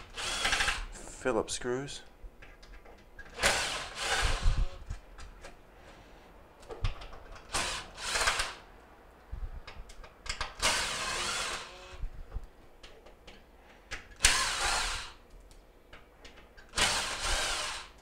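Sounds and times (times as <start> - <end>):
power drill short bursts: 0.0 - 0.8, 3.4 - 4.8, 10.6 - 12.0, 14.2 - 15.2, 16.7 - 18.0.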